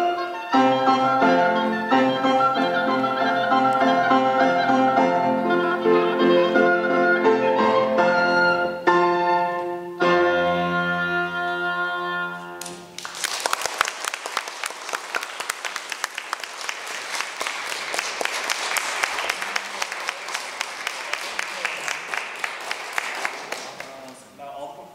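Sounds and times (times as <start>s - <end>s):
oboe and piano chords: 0.0s - 12.9s
audience applauding: 12.6s - 24.2s.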